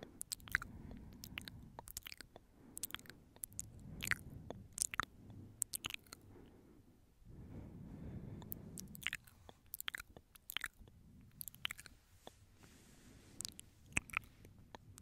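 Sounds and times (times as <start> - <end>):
soft breathing: 0.0 - 15.0
wet mouth clicks and smacks: 0.2 - 6.2, 8.4 - 12.4, 13.4 - 14.9.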